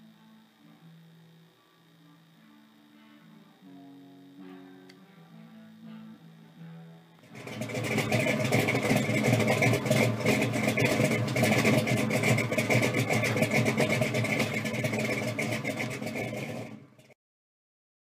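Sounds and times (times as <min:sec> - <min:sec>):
car engine running: 0:07.2 - 0:17.2
exhaust popping: 0:07.2 - 0:17.2.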